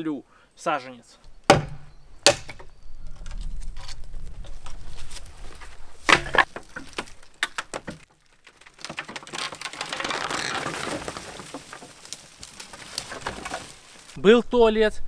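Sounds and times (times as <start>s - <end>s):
rustling scraping noise: 3.1s - 14.2s
wooden boards knocking: 6.1s - 13.8s.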